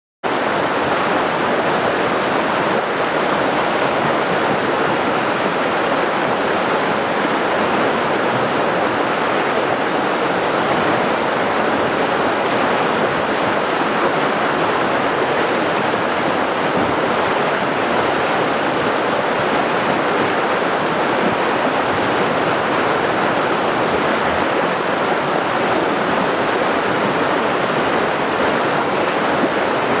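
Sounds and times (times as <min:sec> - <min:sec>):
water rushing over boulders: 0:00.3 - 0:30.0.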